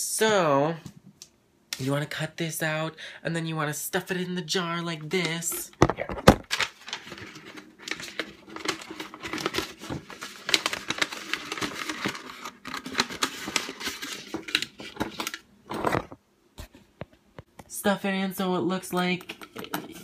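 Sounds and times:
paper crumpling: 6.4 - 16.1.

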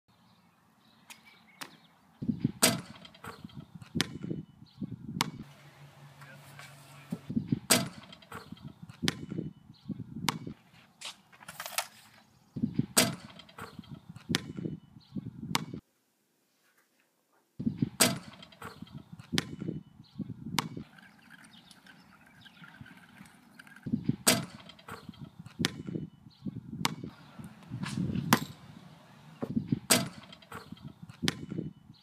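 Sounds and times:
basketball bouncing on pavement: 1.6 - 4.5, 5.1 - 5.5, 7.1 - 10.6, 12.6 - 14.8, 15.4 - 15.8, 17.6 - 19.8, 20.4 - 20.9, 23.9 - 26.1, 26.7 - 31.8.

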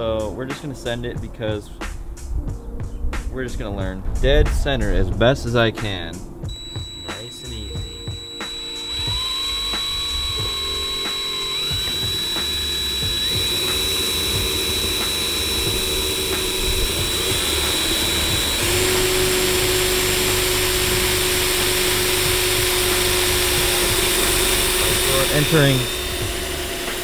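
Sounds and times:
cordless drill whining: 6.5 - 27.0.

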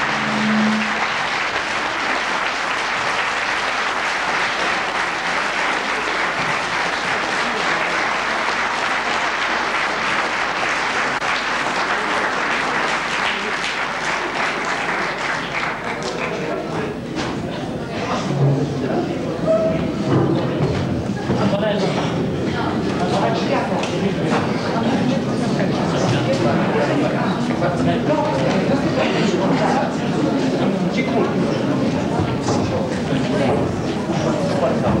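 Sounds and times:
audience applauding: 0.0 - 16.8.

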